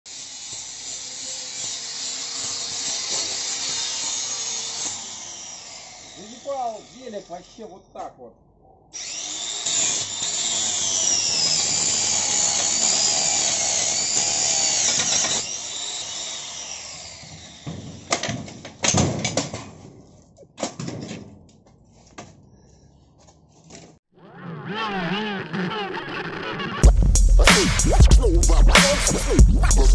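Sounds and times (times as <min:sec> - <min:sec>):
angle grinder on steel: 0:00.1 - 0:07.9, 0:09.0 - 0:18.2.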